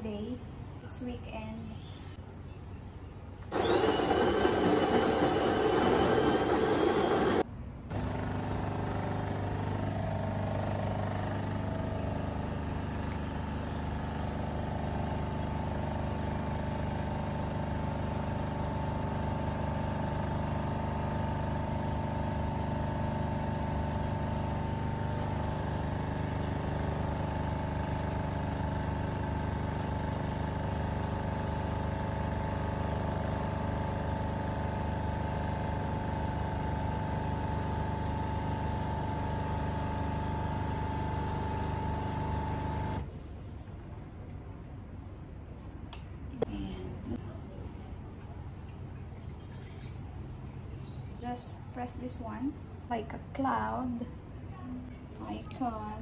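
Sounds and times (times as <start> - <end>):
coffee machine pump humming: 3.5 - 43.1.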